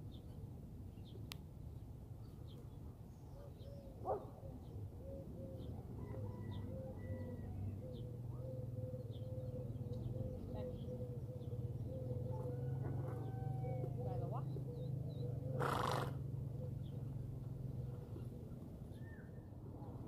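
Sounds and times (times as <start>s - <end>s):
small birds chirping: 7.7s - 19.3s.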